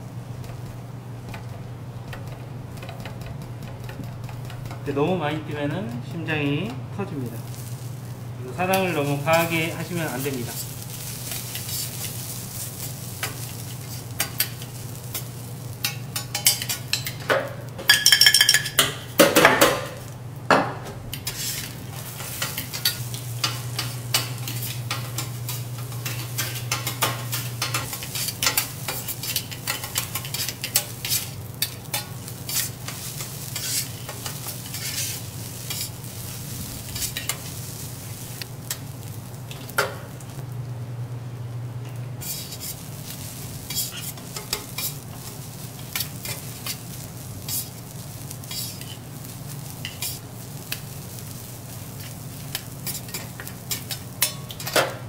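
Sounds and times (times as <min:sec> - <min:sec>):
food sizzling: 0:00.0 - 0:55.0
spatula scraping griddle: 0:07.4 - 0:07.9, 0:08.6 - 0:17.3, 0:21.1 - 0:38.8, 0:42.2 - 0:54.9.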